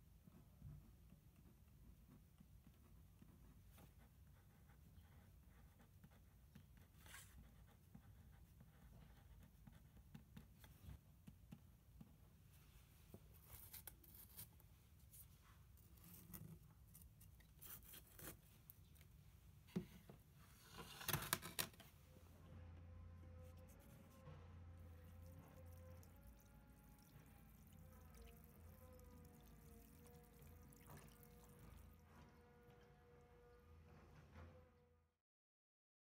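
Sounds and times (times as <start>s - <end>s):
low steady hum: 21.9s - 34.8s.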